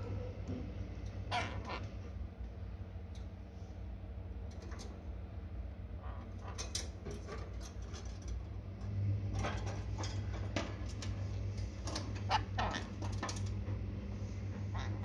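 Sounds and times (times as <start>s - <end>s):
steady low hum: 0.0s - 15.0s
parrot squeaky chirps: 1.3s - 1.8s.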